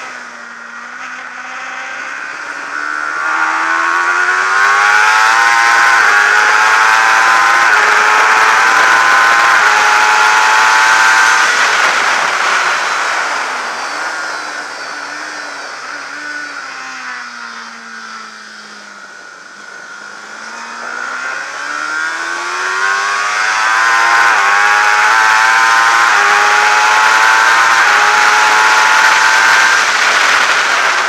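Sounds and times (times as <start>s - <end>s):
motorcycle engine revving: 0.0s - 31.0s
wind rush: 10.5s - 16.0s.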